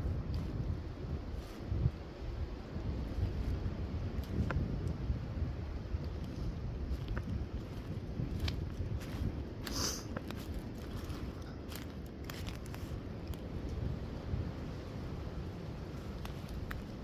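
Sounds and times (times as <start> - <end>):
wind rumble on microphone: 0.0 - 17.0
twigs crackling: 6.0 - 13.8, 15.9 - 17.0
footsteps crunching through dry leaves: 6.2 - 13.5.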